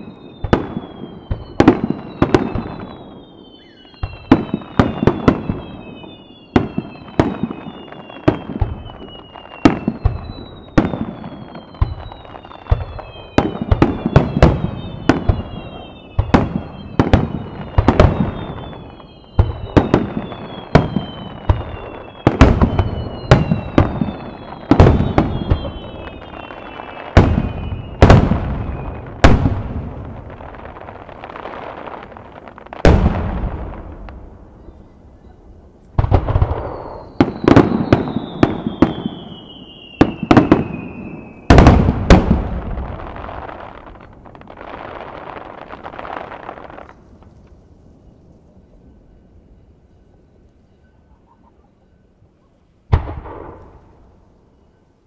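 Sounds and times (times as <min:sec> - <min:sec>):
high falling whistles: 0:00.0 - 0:29.3, 0:36.4 - 0:41.7
fireworks bangs: 0:00.0 - 0:48.2, 0:52.9 - 0:54.2.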